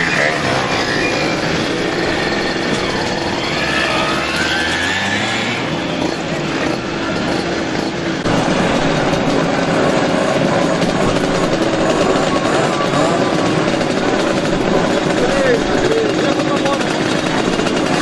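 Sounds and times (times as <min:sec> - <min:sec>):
motorcycles revving past: 0:00.0 - 0:18.0.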